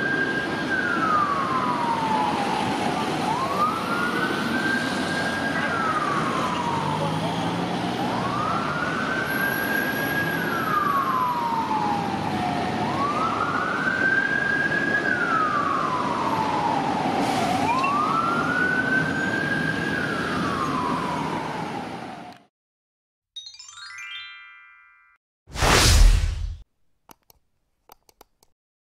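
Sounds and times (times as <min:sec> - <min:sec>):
emergency siren wailing: 0:00.0 - 0:22.4
city traffic noise: 0:00.0 - 0:22.5.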